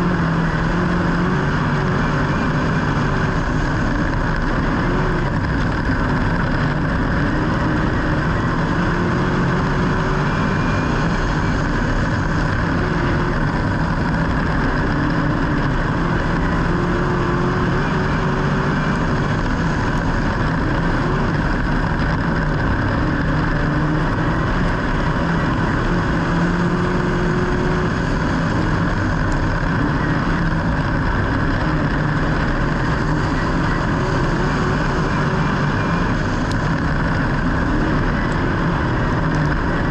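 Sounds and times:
road and wind noise: 0.0 - 39.9
vehicle engine droning: 0.0 - 39.9.

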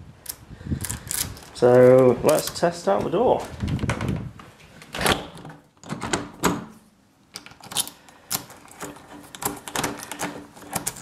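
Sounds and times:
key turning in lock: 7.3 - 11.0.

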